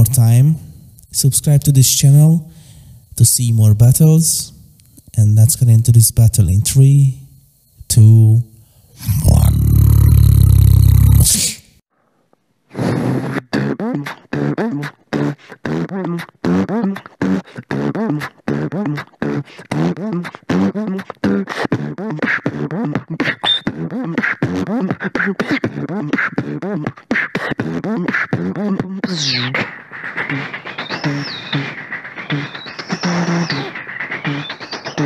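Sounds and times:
held higher tone: 0:00.0 - 0:02.5
humming bass line: 0:00.0 - 0:02.5, 0:07.8 - 0:11.5
beatboxing kicks and snares: 0:00.0 - 0:06.9, 0:09.0 - 0:11.8, 0:13.1 - 0:35.0.

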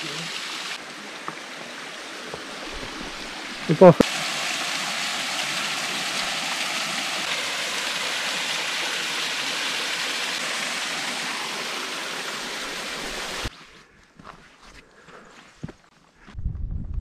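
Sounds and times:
waterfall pouring into rock pool: 0:00.0 - 0:13.5.

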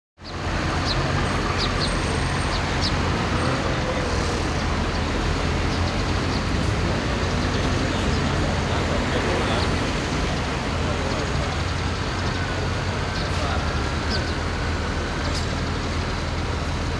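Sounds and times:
traffic: 0:00.2 - 0:16.9
heavy machinery engine rumble: 0:00.3 - 0:16.9.

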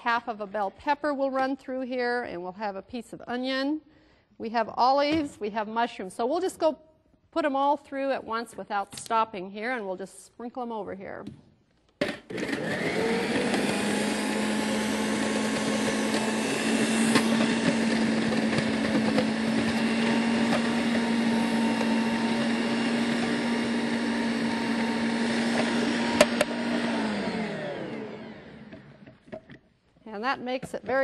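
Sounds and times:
food processor motor running: 0:12.0 - 0:29.2.

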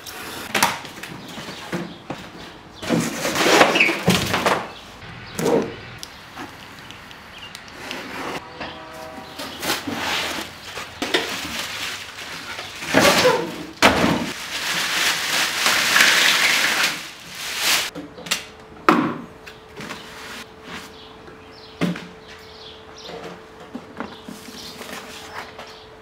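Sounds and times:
plastic and cardboard crinkling: 0:09.5 - 0:17.9.

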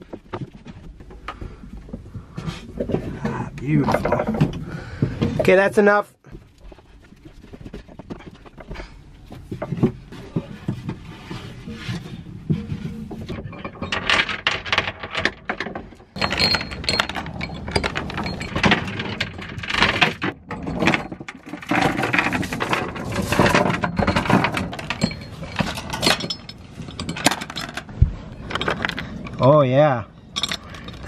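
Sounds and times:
anchor chain clanking and rattling: 0:00.0 - 0:05.6, 0:07.2 - 0:29.6, 0:30.3 - 0:31.0.

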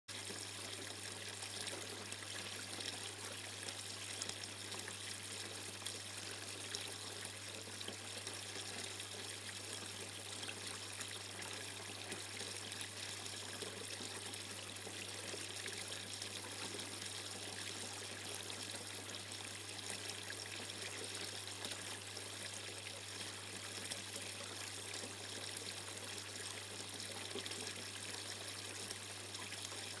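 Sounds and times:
water trickling down water feature: 0:00.1 - 0:30.0.

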